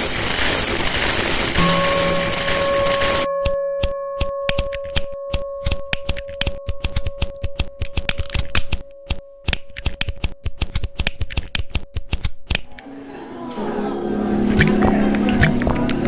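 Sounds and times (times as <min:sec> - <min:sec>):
steady tone: 0:00.0 - 0:05.9
rapid sharp clicking: 0:05.7 - 0:12.7.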